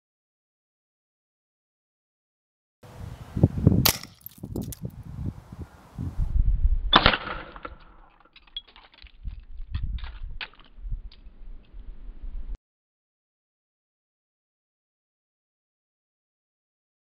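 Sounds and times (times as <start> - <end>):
air rifle firing crack: 3.8 - 4.3
loud pellet hit: 3.8 - 4.3, 6.9 - 8.0.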